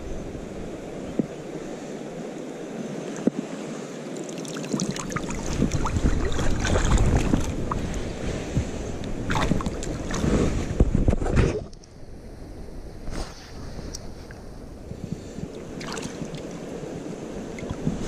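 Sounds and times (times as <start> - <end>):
river water splashing: 0.4 - 10.8, 15.4 - 18.0
low rumble on microphone: 4.9 - 18.0.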